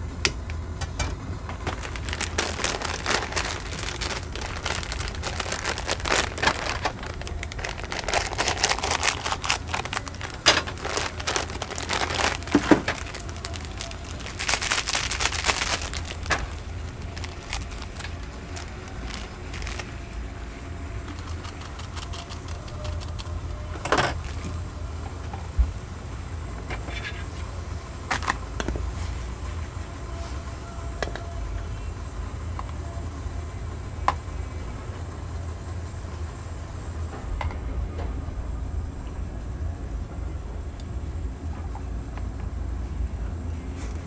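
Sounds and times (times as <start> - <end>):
steady low hum: 0.0 - 44.0
crinkling and rustling: 0.8 - 25.6.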